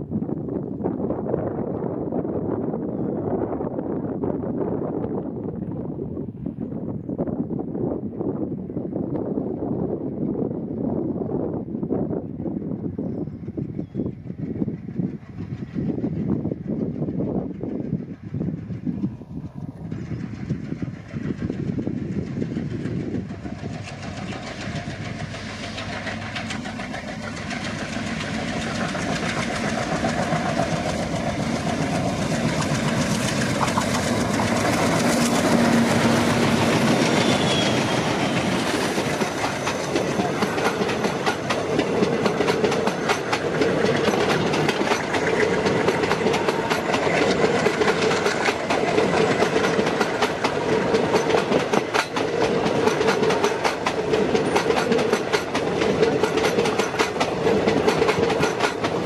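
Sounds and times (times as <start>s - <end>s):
diesel locomotives passing: 0.0s - 59.0s
clickety-clack of train wheels: 12.0s - 59.0s.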